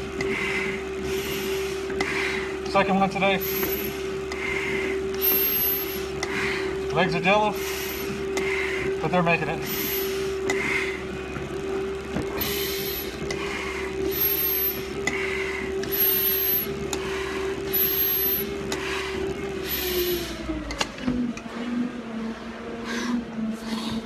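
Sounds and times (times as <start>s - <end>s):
heavy breathing through a face mask: 0.0s - 2.6s, 3.8s - 5.2s, 5.8s - 6.8s, 7.5s - 9.0s, 9.6s - 11.2s, 12.4s - 20.6s, 21.5s - 24.0s
steady machine hum: 0.0s - 24.0s.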